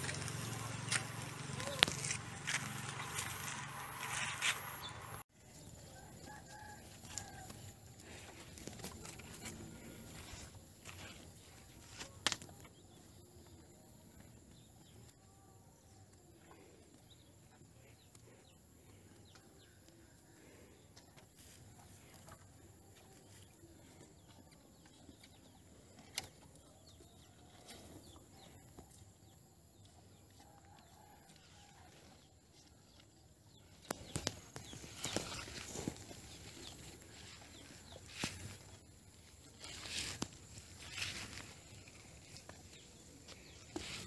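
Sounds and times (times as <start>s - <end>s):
cattle feeding on hay: 0.0s - 5.2s, 34.1s - 44.0s.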